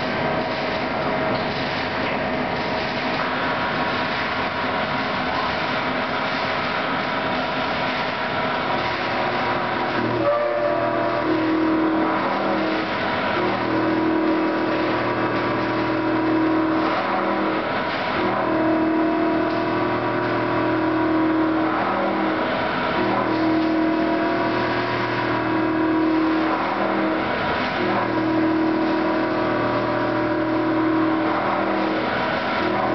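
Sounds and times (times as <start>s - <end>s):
machine cutting metal: 0.0s - 32.9s
motor hum: 2.2s - 32.9s
coolant spray hiss: 10.7s - 32.9s.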